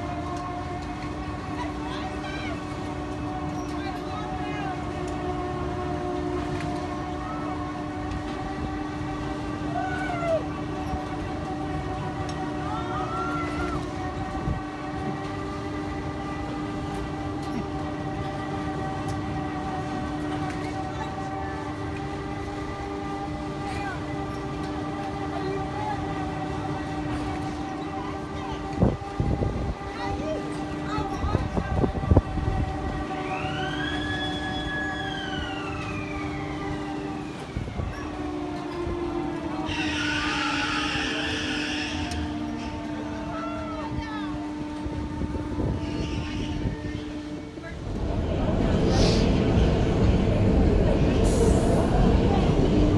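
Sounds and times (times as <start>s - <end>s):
machine hum: 0.0s - 52.9s
thrill ride mechanical drone: 0.0s - 52.9s
wailing tone: 0.0s - 52.9s
low rumble: 46.5s - 52.9s.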